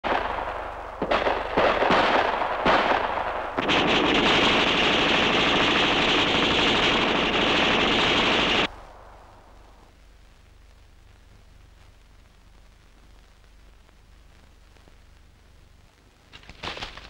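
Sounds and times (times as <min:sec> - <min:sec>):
gunshots and automatic fire: 0:00.0 - 0:08.7.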